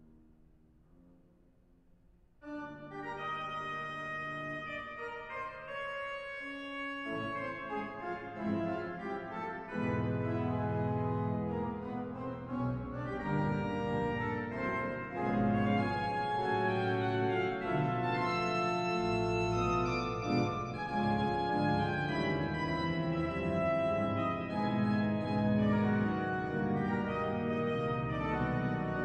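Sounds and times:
organ music: 2.4s - 29.0s.

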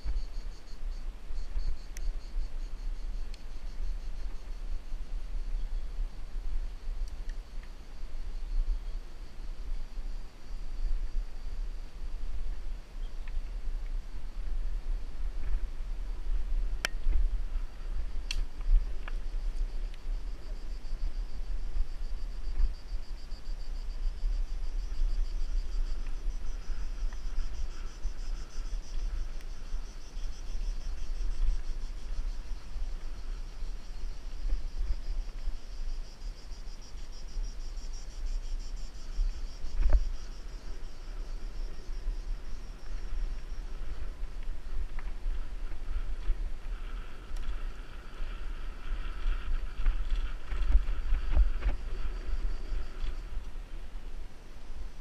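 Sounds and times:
high-pitched insect chorus: 0.0s - 55.0s
wind rumble on microphone: 0.0s - 55.0s.

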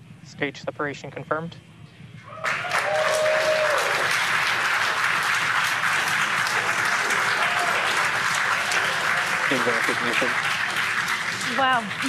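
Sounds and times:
held whoop: 2.3s - 4.2s, 6.9s - 9.4s
crowd cheering and applauding: 2.3s - 12.0s.

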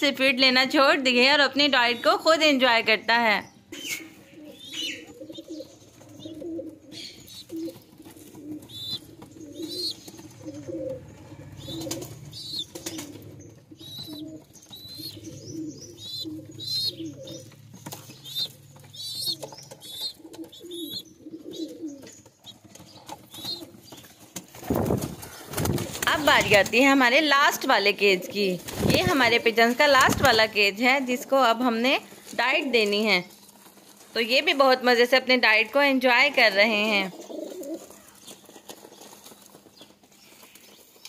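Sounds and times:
pigeons cooing: 3.7s - 26.7s, 37.1s - 39.6s
beaks pecking at seed: 3.8s - 24.8s.

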